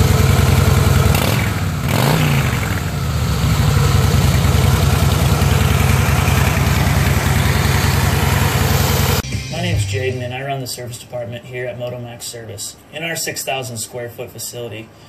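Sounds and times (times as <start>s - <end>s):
motorcycle engine idling: 0.0s - 9.2s.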